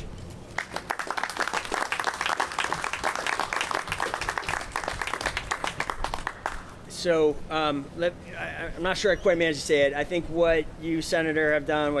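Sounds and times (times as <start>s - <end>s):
crowd applauding: 0.6s - 6.7s.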